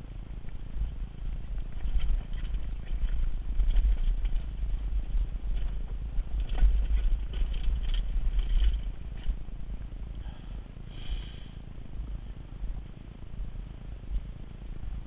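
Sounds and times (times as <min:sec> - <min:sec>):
wind buffeting microphone: 0:00.0 - 0:10.2
bike rattling over rough ground: 0:00.0 - 0:15.0.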